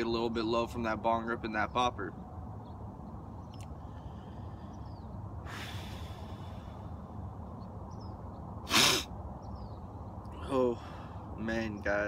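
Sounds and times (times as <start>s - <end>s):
low background rumble: 0.0s - 12.0s
person taking deep breath: 5.4s - 7.0s.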